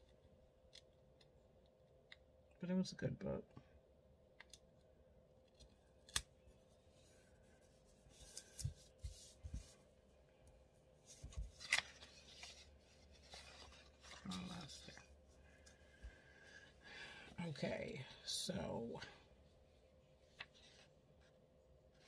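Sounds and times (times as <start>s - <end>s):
paper rustling and sliding: 7.6s - 9.8s, 11.0s - 15.0s, 20.3s - 21.4s.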